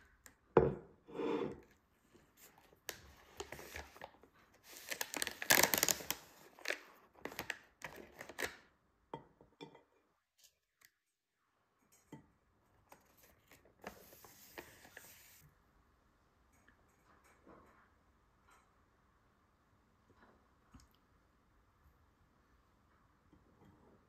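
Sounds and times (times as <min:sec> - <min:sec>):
plastic bag rustling: 0:03.4 - 0:07.5.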